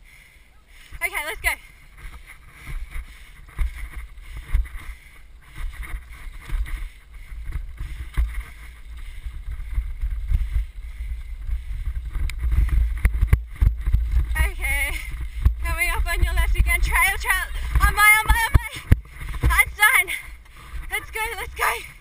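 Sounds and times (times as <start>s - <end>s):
wind buffeting microphone: 0.9s - 22.0s.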